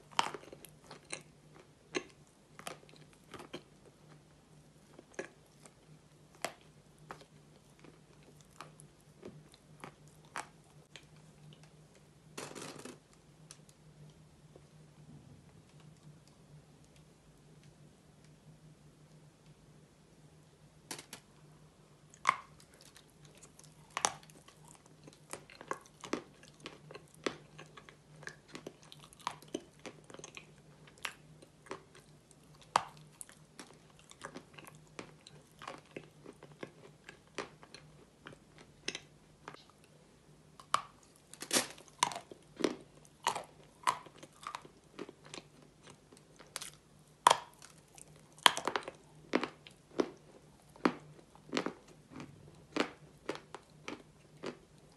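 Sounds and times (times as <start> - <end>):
crunchy biting and chewing: 0.0 - 4.2, 22.1 - 39.7, 40.6 - 54.9
faint low hum: 0.0 - 54.9.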